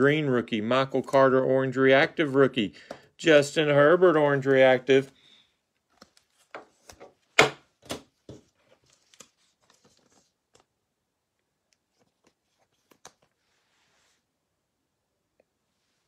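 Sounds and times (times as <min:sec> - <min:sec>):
cards rustling: 0:05.8 - 0:07.4, 0:08.0 - 0:10.8, 0:11.8 - 0:13.6.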